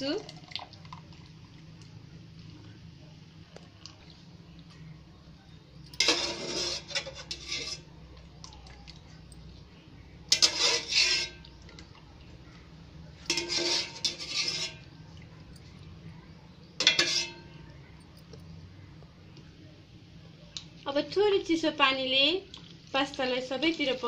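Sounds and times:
metal ladle scraping a pot: 6.0s - 7.9s, 10.3s - 11.5s, 13.2s - 15.0s, 16.8s - 17.6s.

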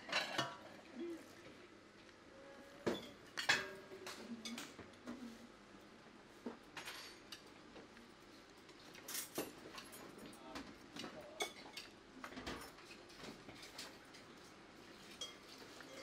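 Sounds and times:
serving utensils clinking on metal: 0.0s - 0.7s, 15.0s - 16.0s.

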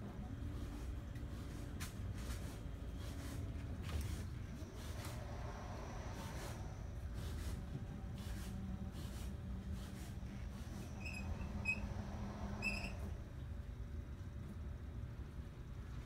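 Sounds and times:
sliding door motor hum: 3.5s - 13.6s
short high squeaks: 10.6s - 13.1s.

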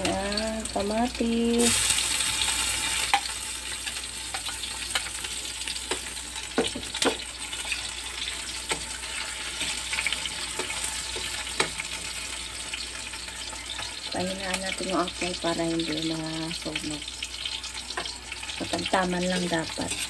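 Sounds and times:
vegetables sizzling in hot oil: 0.0s - 20.0s
spatula scraping a pan: 7.5s - 12.7s.

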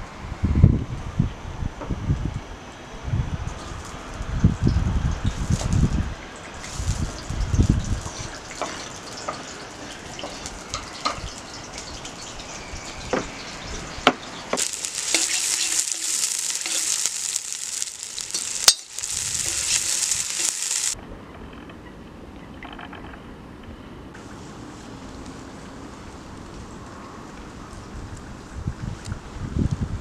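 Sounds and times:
onions sizzling in hot oil: 4.5s - 21.0s
metal skimmer stirring: 6.4s - 12.4s, 14.6s - 21.0s.

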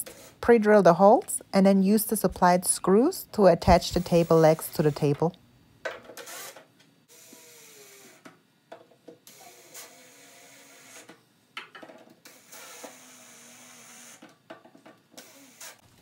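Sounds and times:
cordless drill whining: 12.3s - 14.2s, 15.2s - 15.8s.

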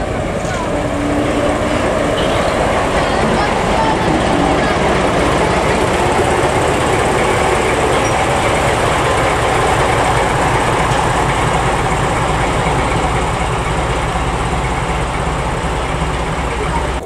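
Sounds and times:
locomotive diesel engine running: 0.0s - 17.0s.

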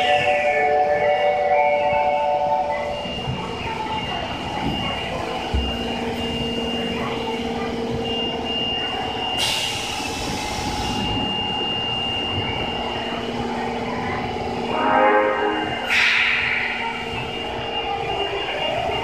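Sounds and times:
train low hum: 0.0s - 19.0s
air hiss of train doors closing: 9.4s - 11.3s, 15.7s - 17.9s.

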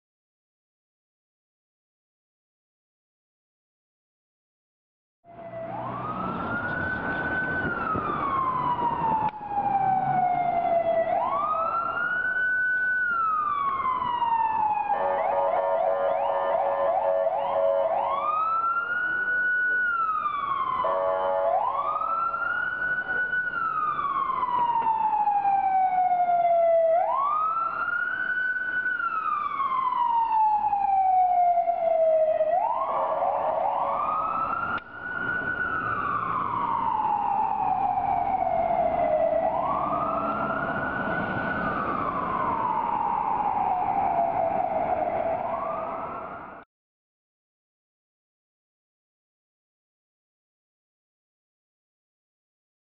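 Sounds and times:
fire engine siren wailing: 5.3s - 46.6s.

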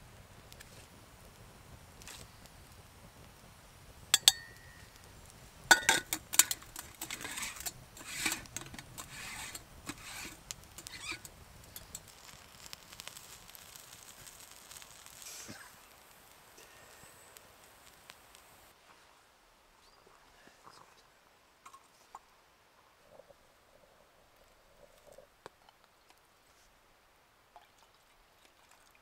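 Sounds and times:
wood fire crackling: 0.0s - 18.9s
metal clinks of a moka pot: 4.2s - 5.0s, 5.7s - 12.1s
rasping scrapes of screw threads: 6.4s - 12.0s.

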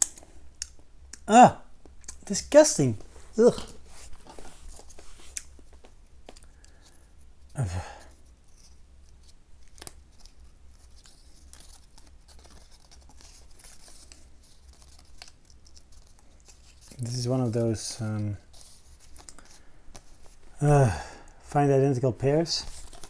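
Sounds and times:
person grunting: 1.3s - 1.6s, 7.6s - 8.0s, 20.6s - 21.1s
cardboard cards tearing and rustling: 3.4s - 20.5s, 22.4s - 23.0s.

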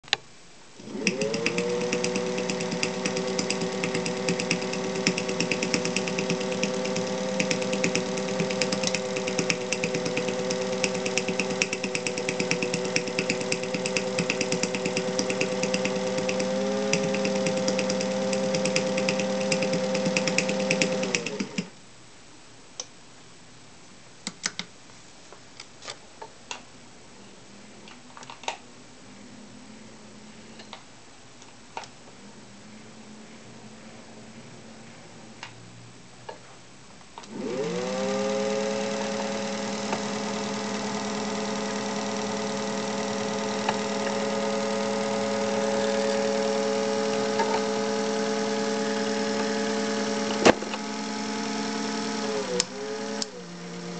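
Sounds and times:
sewing machine motor hum: 0.8s - 21.7s, 37.3s - 53.9s
rapid needle ticking: 1.0s - 21.6s.

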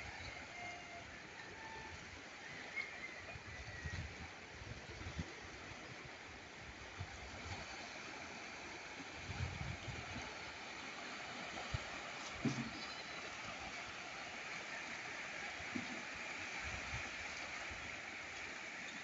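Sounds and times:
waves lapping on stony shore: 0.0s - 19.0s
wind buffeting microphone: 9.2s - 10.3s.

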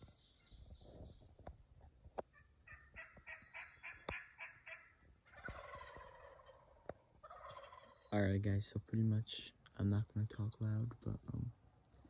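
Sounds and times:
turkey gobbling: 2.3s - 8.1s.

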